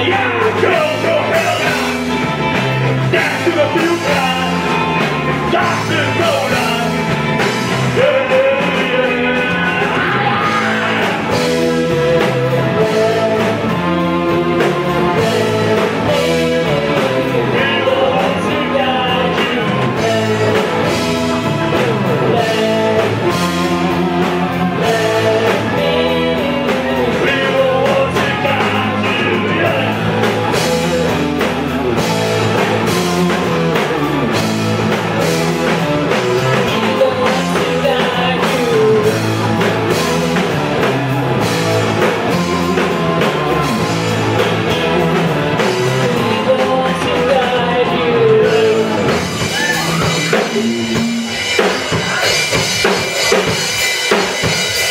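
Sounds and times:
drum kit: 0.0s - 54.9s
electric guitar: 0.0s - 54.9s.

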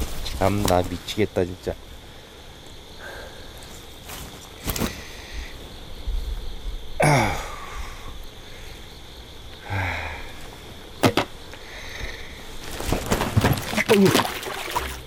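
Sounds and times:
man groaning: 7.0s - 7.6s.

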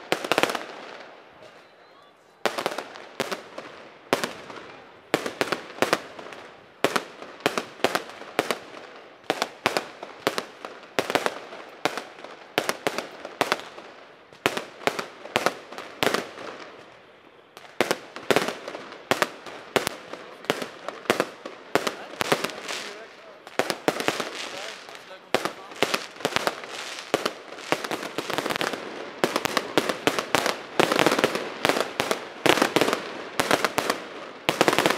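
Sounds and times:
fireworks bursting with sharp bangs: 0.0s - 34.9s.

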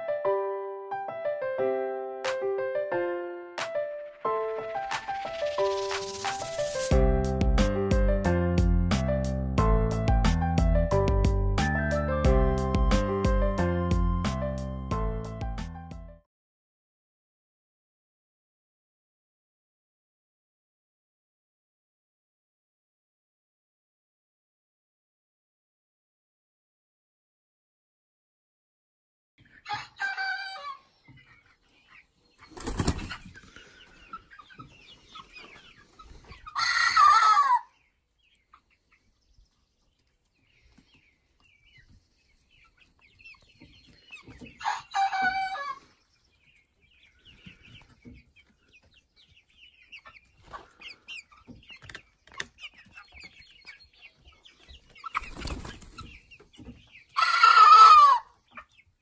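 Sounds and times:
wings flapping: 4.9s - 6.9s, 32.5s - 33.3s, 55.2s - 56.0s
faint hens clucking: 29.4s - 59.0s
young cockerels crowing: 29.6s - 30.8s, 36.5s - 37.8s, 44.6s - 45.8s, 57.2s - 58.3s.

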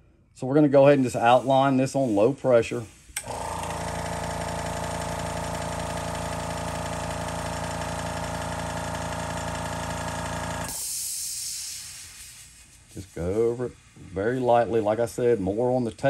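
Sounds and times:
hiss of released air: 1.1s - 3.2s, 10.7s - 15.2s
air compressor motor hum: 1.2s - 16.0s.

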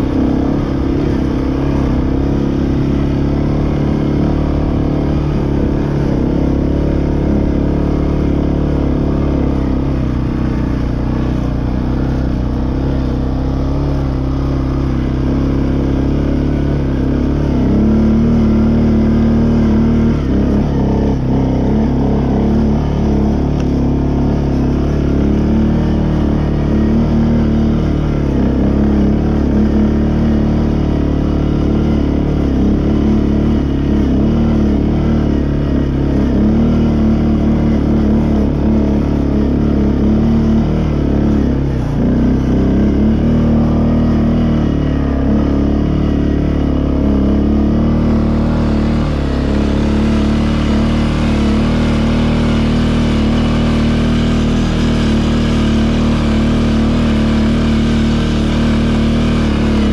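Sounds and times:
quad bike engine under load: 0.0s - 59.9s.

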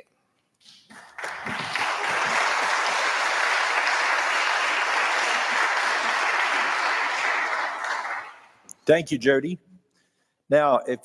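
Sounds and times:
crowd applauding: 0.9s - 8.6s.

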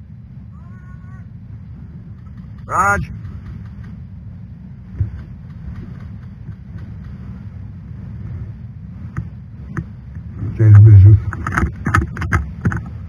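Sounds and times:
wind rumble on microphone: 0.0s - 13.0s
microphone handling noise: 4.9s - 7.4s, 8.0s - 13.0s.

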